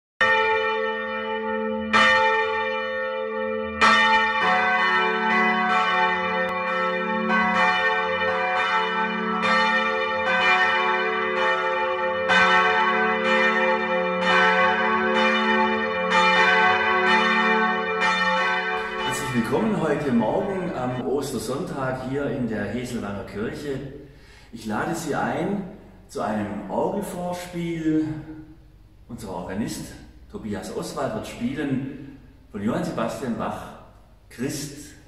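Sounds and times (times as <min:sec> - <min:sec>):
church bells ringing: 0:00.2 - 0:28.8
lower-pitched bell striking: 0:18.7 - 0:21.1.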